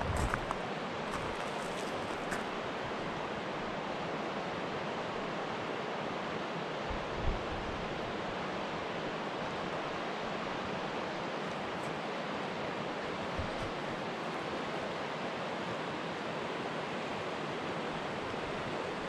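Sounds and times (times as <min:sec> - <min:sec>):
rushing water: 0:00.0 - 0:19.0.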